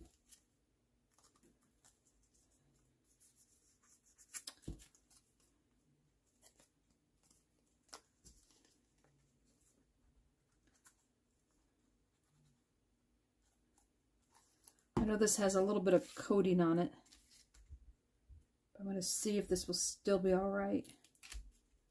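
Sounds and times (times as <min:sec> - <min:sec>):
card stock taps and rustles: 0:04.3 - 0:05.2.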